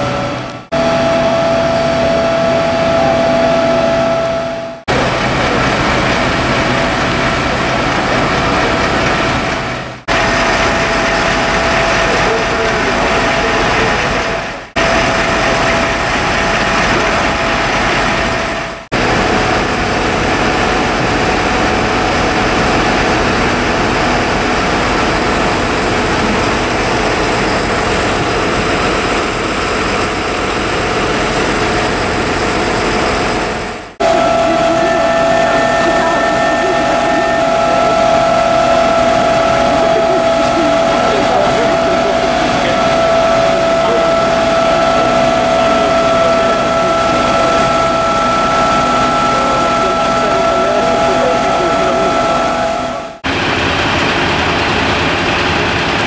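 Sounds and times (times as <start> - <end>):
diesel engines running: 0.0 - 56.0
faint steady whine: 32.5 - 53.3.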